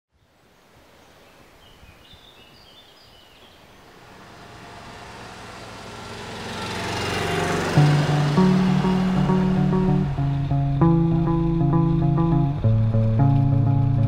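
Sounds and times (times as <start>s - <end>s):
outdoor ambient noise: 0.1s - 14.0s
music: 7.7s - 14.0s.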